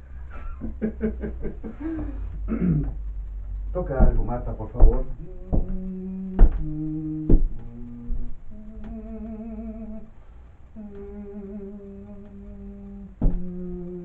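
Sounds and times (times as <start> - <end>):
person humming a slow melody: 1.7 - 3.0, 5.0 - 14.0
sharp knock: 4.0 - 5.8.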